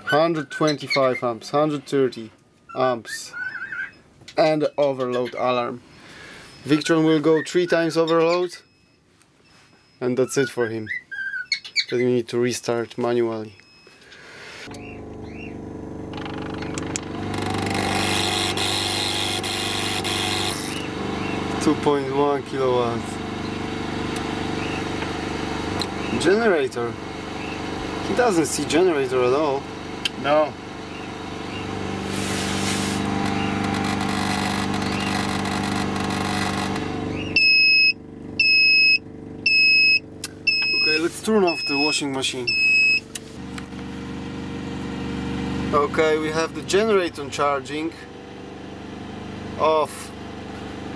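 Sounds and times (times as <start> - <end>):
high-pitched alarm beeps: 8.6 - 10.1, 33.9 - 43.1
inverter humming: 13.4 - 50.9
loud hiss: 32.0 - 33.0.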